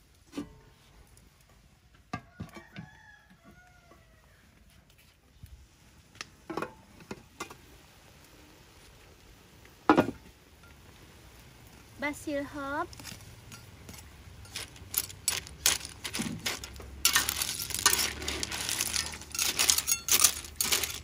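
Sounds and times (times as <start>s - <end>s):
rooster crowing: 2.2s - 4.5s.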